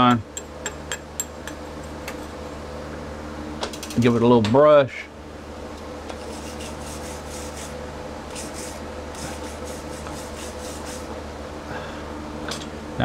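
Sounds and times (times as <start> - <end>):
wire brush scrubbing steel: 6.2 - 11.1.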